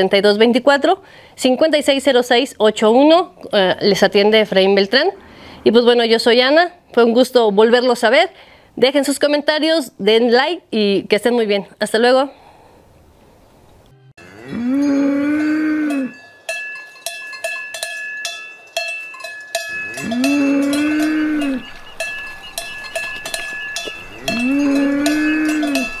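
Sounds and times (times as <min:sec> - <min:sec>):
cow mooing: 0:14.2 - 0:16.2, 0:19.7 - 0:22.0, 0:23.9 - 0:26.0
cowbell clanking: 0:14.9 - 0:26.0.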